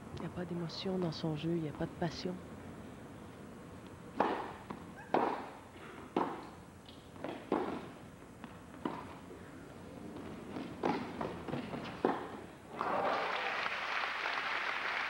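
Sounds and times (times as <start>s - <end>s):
tennis racket hitting ball: 4.1s - 6.6s, 7.2s - 9.2s, 10.2s - 12.4s
tennis ball bouncing: 4.1s - 9.3s, 10.1s - 12.5s.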